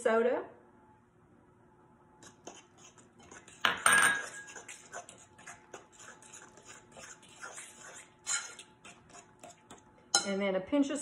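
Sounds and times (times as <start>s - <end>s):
fork scraping and clinking in bowl: 2.2s - 10.4s.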